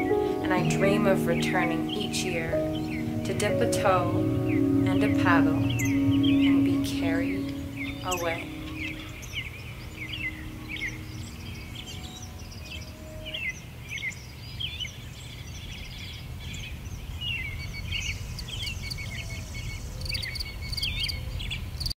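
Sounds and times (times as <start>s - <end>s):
high buzzing trill: 0.0s - 13.2s
songbirds chirping and warbling: 0.0s - 21.9s.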